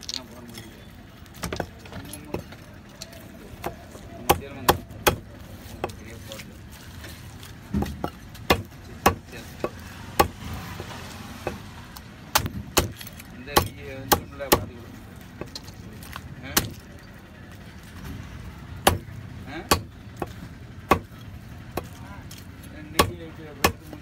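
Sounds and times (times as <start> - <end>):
knife chopping on wooden block: 7.8 - 10.4, 12.3 - 14.7, 19.7 - 21.1, 23.0 - 24.0.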